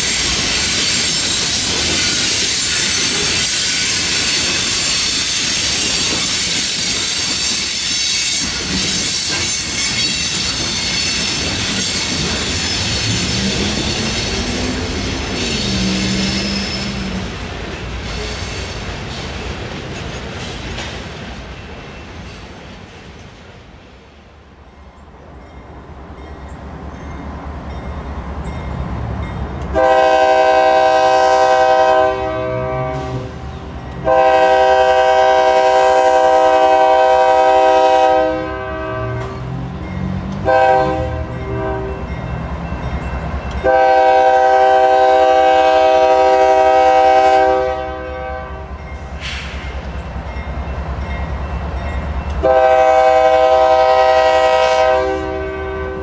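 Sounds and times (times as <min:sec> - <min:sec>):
train diesel engines rumbling: 0:00.0 - 0:56.0
locomotive air horn blasts: 0:29.8 - 0:33.4, 0:34.0 - 0:39.4, 0:40.4 - 0:42.1, 0:43.6 - 0:48.8, 0:52.4 - 0:56.0.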